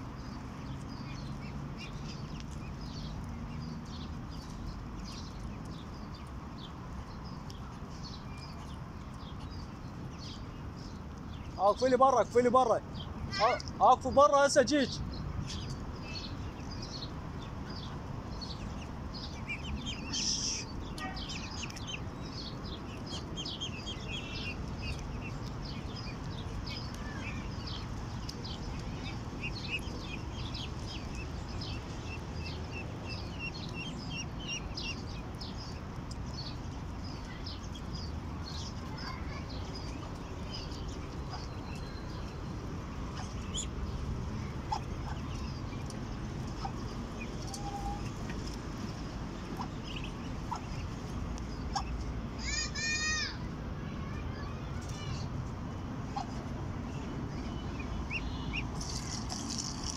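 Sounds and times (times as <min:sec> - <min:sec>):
ducklings peeping: 0:00.0 - 0:53.2, 0:54.0 - 0:59.9.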